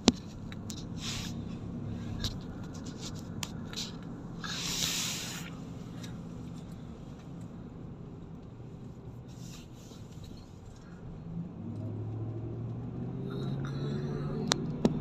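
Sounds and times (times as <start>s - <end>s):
engine and road hum: 0.0s - 15.0s
burst of hiss: 4.4s - 5.6s.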